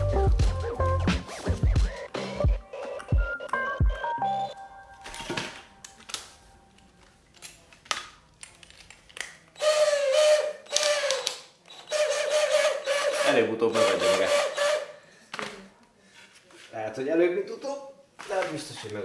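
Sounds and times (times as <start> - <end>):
cordless drill motor whining: 9.6 - 14.9.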